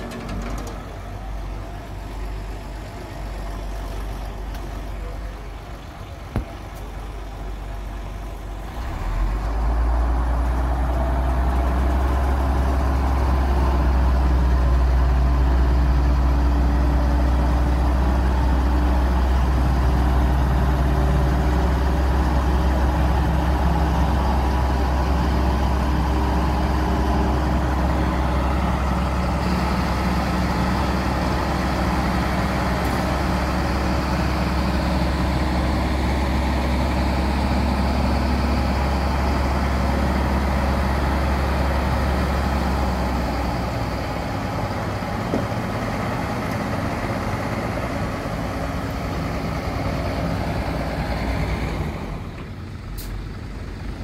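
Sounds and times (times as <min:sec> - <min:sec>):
diesel truck engine droning: 0:00.0 - 0:54.0.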